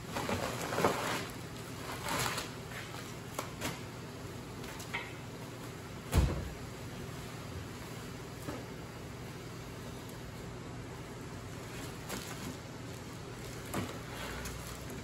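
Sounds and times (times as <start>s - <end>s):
plastic wrapping rustling: 0.0s - 4.0s, 11.3s - 15.0s.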